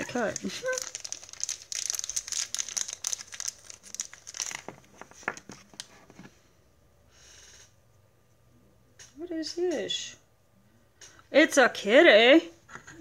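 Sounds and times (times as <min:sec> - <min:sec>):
packaging crinkling and rustling: 0:00.0 - 0:06.3.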